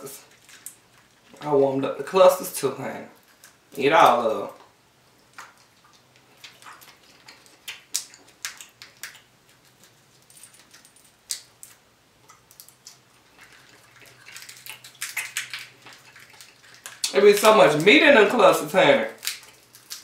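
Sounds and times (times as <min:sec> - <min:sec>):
crab shells crackling and snapping: 0:00.2 - 0:01.6, 0:03.2 - 0:03.8, 0:04.5 - 0:20.0
chewing and mouth sounds: 0:04.6 - 0:17.9, 0:19.1 - 0:20.0.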